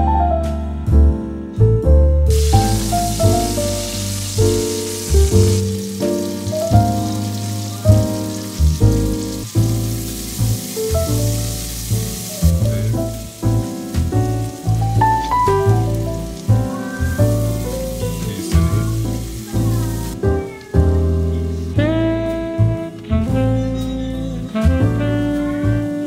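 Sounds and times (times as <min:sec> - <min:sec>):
background music with piano: 0:00.0 - 0:26.0
sausage sizzling in oil: 0:02.3 - 0:21.8.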